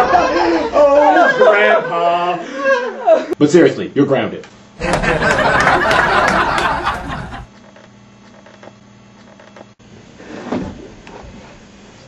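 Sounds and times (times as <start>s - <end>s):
studio audience laughter: 0.0s - 3.4s, 4.8s - 7.5s.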